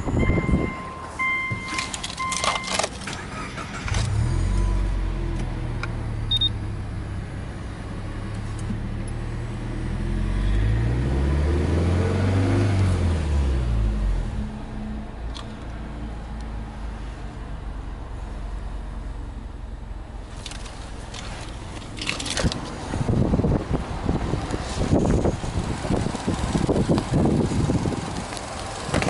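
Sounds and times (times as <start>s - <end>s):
car warning chime beeping: 0.0s - 2.9s, 6.3s - 6.6s
car engine starting and idling: 0.0s - 29.0s
car engine revving: 3.6s - 14.6s.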